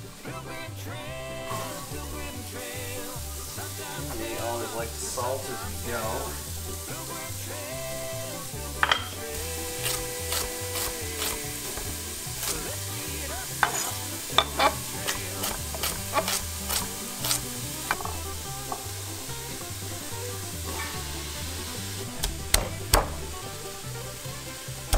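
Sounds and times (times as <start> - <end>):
background music with bass beat: 0.0 - 24.9.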